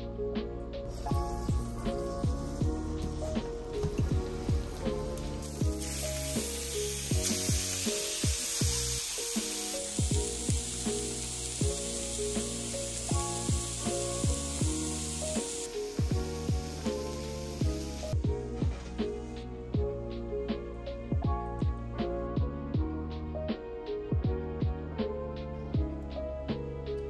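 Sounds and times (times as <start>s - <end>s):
music with steady beat: 0.0s - 27.0s
food sizzling in frying pan: 0.9s - 18.2s.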